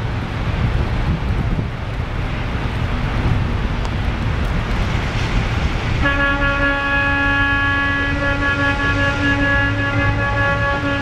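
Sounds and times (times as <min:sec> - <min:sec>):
traffic rumbling through slush: 0:00.0 - 0:11.0
wind on microphone: 0:00.0 - 0:11.0
steady horn-like tone: 0:06.0 - 0:11.0.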